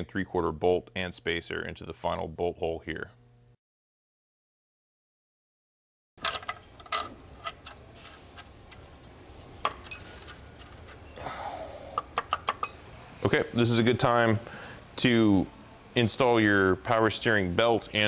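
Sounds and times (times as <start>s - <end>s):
metal tools clinking: 6.2s - 11.2s, 12.5s - 13.0s.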